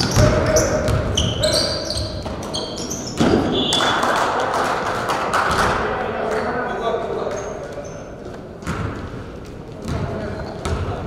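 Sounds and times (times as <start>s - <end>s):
basketball bouncing: 0.0s - 1.4s, 3.1s - 3.8s, 8.6s - 9.1s, 9.8s - 11.0s
sneakers squeaking on floor: 0.0s - 4.1s, 7.2s - 9.1s, 9.8s - 11.0s
chatter in large hall: 0.0s - 11.0s.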